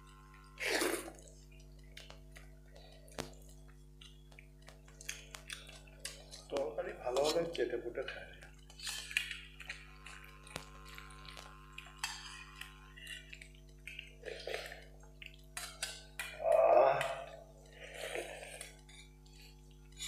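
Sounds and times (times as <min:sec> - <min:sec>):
loud slurp from spoon: 0:00.6 - 0:01.3.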